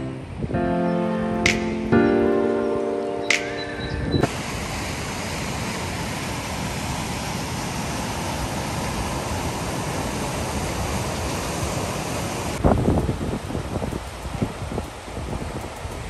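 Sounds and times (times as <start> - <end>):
whitewater rushing over rapids: 4.3 - 16.0.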